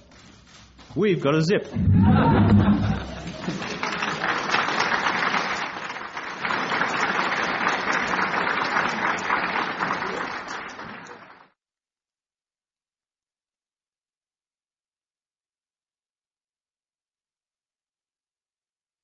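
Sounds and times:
audience applauding: 0:02.0 - 0:11.5.

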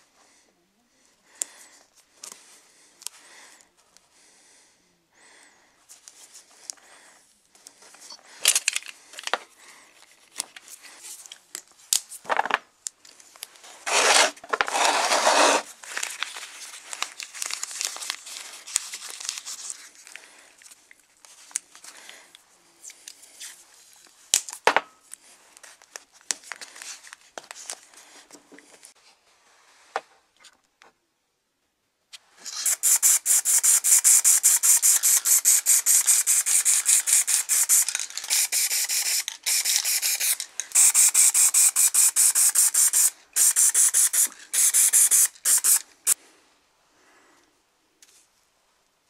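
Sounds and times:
paper tearing and crinkling: 0:13.8 - 0:19.9.

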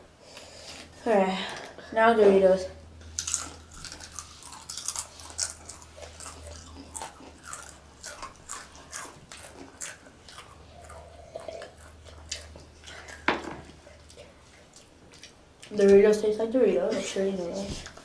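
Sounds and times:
low steady hum: 0:00.0 - 0:18.0
chips being crunched and chewed: 0:03.1 - 0:13.3.

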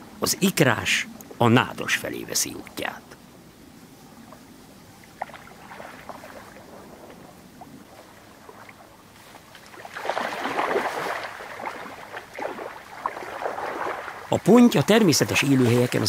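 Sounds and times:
fish splashing in shallow water: 0:04.2 - 0:16.0
loud splashing and thrashing: 0:09.8 - 0:16.0.

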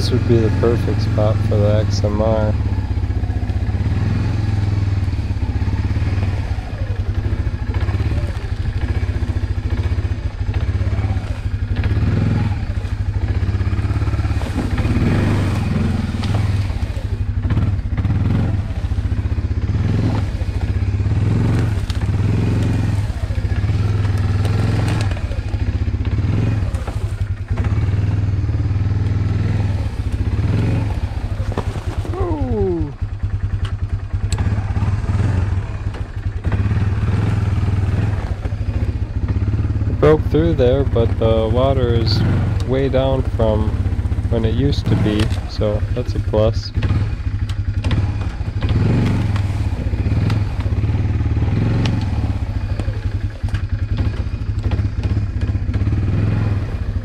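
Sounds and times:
atv engine running at low speed: 0:00.0 - 0:57.0
dry grass brushing and crackling: 0:05.1 - 0:17.4, 0:18.2 - 0:27.9, 0:29.4 - 0:32.5.

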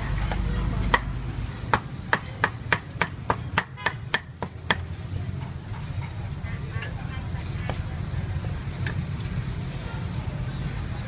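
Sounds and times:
cleaver chopping on wooden block: 0:01.7 - 0:04.9.

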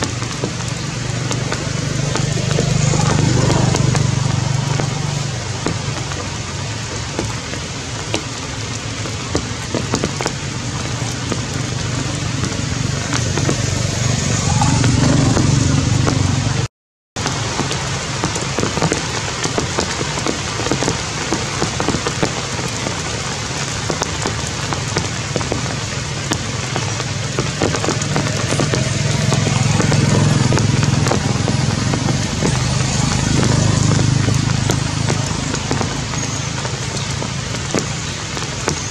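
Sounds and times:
heavy rain falling: 0:00.0 - 0:38.9
low rumble: 0:10.4 - 0:16.7.

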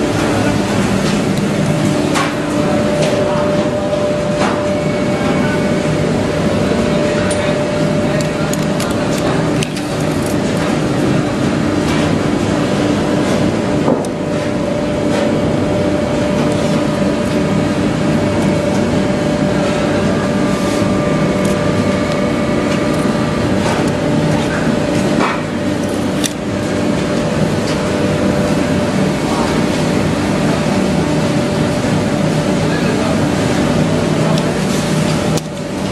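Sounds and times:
machine humming and droning: 0:00.0 - 0:35.9.

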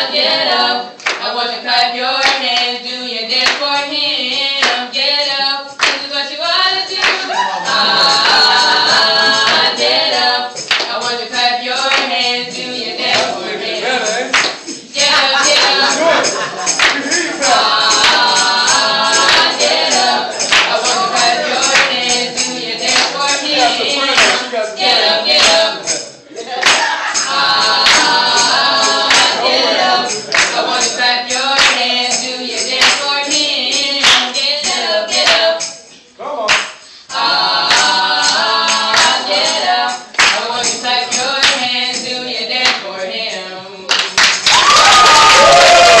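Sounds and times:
group of voices singing: 0:00.0 - 0:46.0
hand clapping: 0:01.0 - 0:01.3, 0:02.2 - 0:02.7, 0:03.4 - 0:03.8, 0:04.6 - 0:04.8, 0:05.8 - 0:06.1, 0:07.0 - 0:07.4, 0:08.1 - 0:10.0, 0:10.6 - 0:11.2, 0:11.8 - 0:12.2, 0:13.0 - 0:13.4, 0:14.3 - 0:25.7, 0:26.6 - 0:33.2, 0:34.0 - 0:34.4, 0:35.2 - 0:35.8, 0:36.5 - 0:36.8, 0:37.6 - 0:41.7, 0:42.6 - 0:42.9, 0:43.9 - 0:46.0.

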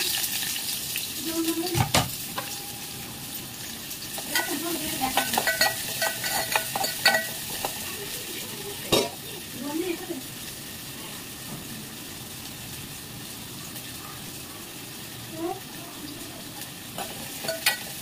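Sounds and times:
food sizzling in oil: 0:00.0 - 0:18.0
utensil clinking against pan: 0:04.2 - 0:07.8, 0:17.0 - 0:18.0.

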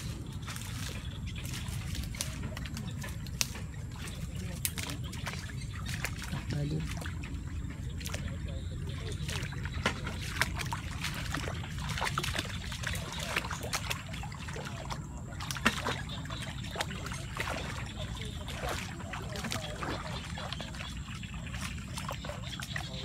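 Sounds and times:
leaves rustling: 0:00.0 - 0:05.7
splashes in shallow water: 0:00.0 - 0:23.0
twigs snapping: 0:03.2 - 0:03.7.

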